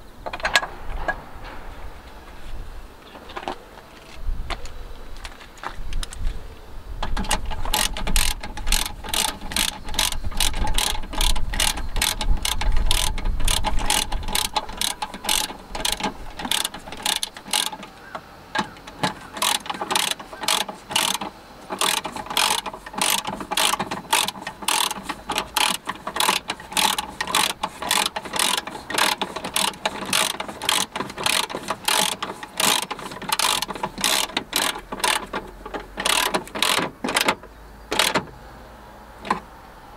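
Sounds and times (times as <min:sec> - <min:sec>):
ratchet wrench clicking: 0:07.0 - 0:38.3.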